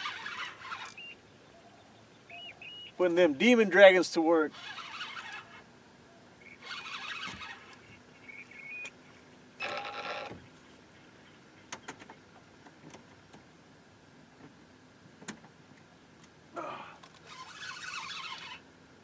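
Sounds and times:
fishing reel drag buzzing: 0.0s - 1.2s, 4.4s - 5.7s, 6.4s - 9.0s, 9.6s - 10.3s, 17.1s - 18.7s.

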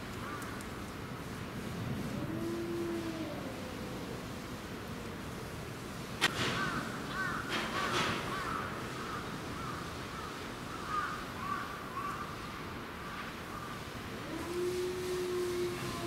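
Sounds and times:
crows cawing: 6.6s - 7.5s, 8.3s - 12.2s.

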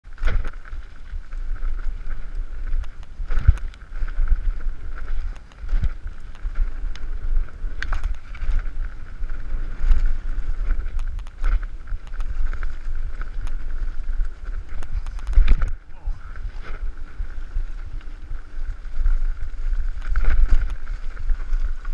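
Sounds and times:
bike rattling over bumps: 0.0s - 21.9s
wind buffeting microphone: 0.0s - 21.9s.

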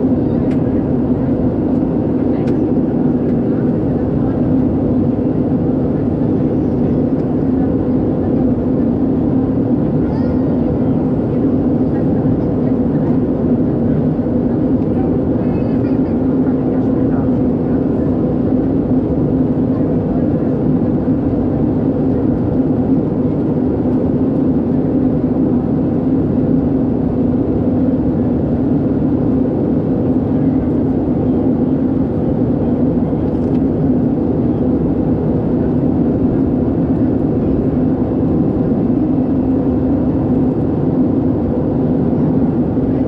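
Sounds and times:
airplane cabin drone: 0.0s - 43.0s.

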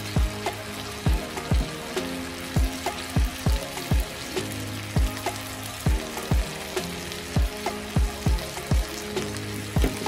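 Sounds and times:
background music: 0.0s - 10.0s
chicken sizzling in oil: 0.0s - 10.0s
deep kick drum beats: 9.8s - 10.0s.

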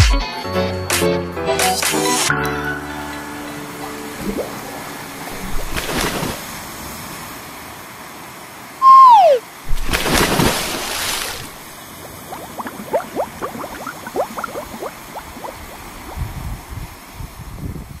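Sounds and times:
waves rushing on beach: 3.4s - 18.0s
water lapping and gurgling: 3.7s - 8.8s, 9.4s - 17.5s.

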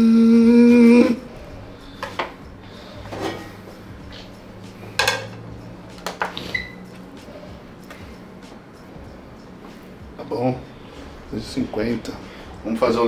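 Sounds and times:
kitchen utensils knocking on worktop: 5.0s - 6.4s.

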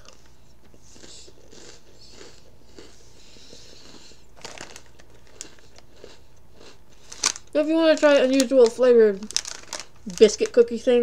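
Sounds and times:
plastic packaging crinkling: 4.4s - 5.9s, 7.0s - 11.0s.

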